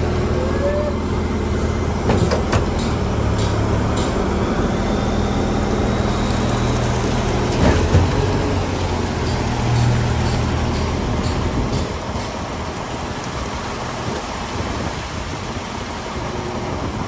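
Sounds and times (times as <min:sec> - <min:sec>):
diesel truck engine running: 0:00.0 - 0:17.0
sharp metal clanks: 0:09.2 - 0:12.4.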